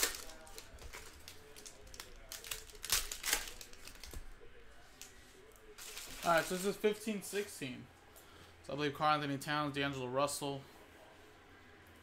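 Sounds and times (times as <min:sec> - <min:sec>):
wrappers crinkling and tearing: 0:00.0 - 0:04.3, 0:05.0 - 0:06.9.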